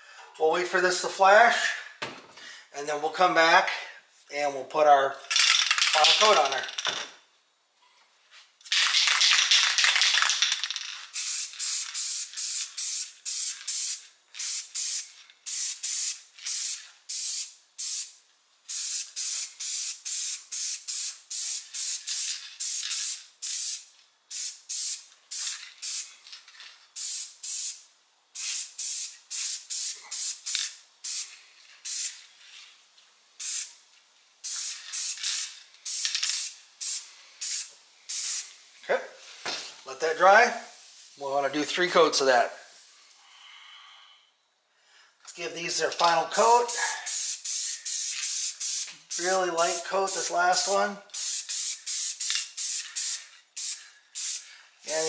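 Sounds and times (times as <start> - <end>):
spray paint can hissing: 8.6 - 26.2, 26.9 - 32.2, 33.4 - 33.8, 34.4 - 38.5, 46.3 - 55.0.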